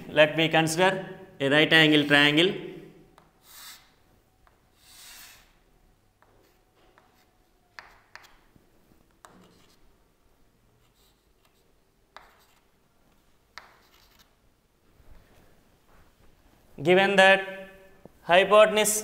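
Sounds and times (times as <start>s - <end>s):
chalk scraping on chalkboard: 3.2s - 4.0s, 4.7s - 5.6s, 6.2s - 8.4s, 9.2s - 9.8s, 10.8s - 12.7s, 13.6s - 14.4s
chalk tapping: 3.2s - 5.6s, 6.2s - 9.8s, 10.8s - 14.3s.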